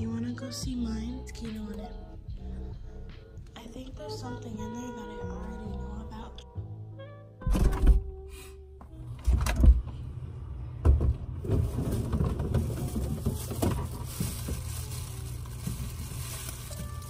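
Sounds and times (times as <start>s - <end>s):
plastic bag crinkling: 11.5s - 17.0s.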